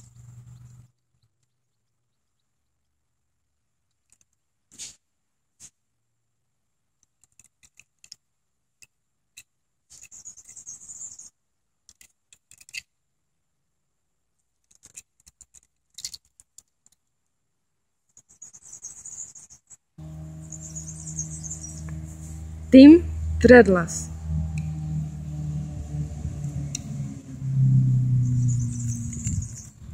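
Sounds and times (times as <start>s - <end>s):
small clicks of toy car: 3.9s - 5.0s, 7.0s - 13.0s, 14.5s - 17.1s.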